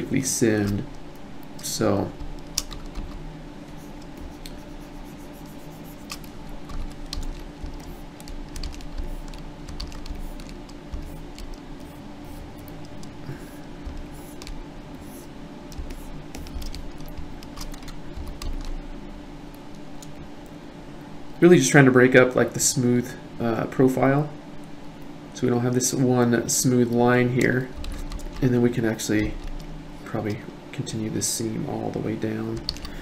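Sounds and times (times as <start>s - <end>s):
steady low hum: 0.0s - 33.0s
computer keyboard clicks and taps: 2.3s - 3.2s, 32.6s - 33.0s.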